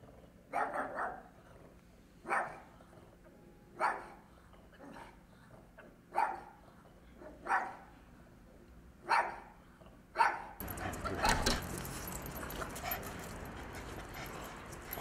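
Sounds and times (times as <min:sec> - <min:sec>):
dogs barking: 0:00.5 - 0:01.3, 0:02.2 - 0:02.7, 0:03.8 - 0:05.2, 0:06.1 - 0:06.6, 0:07.2 - 0:07.9, 0:09.0 - 0:09.6, 0:10.2 - 0:15.0.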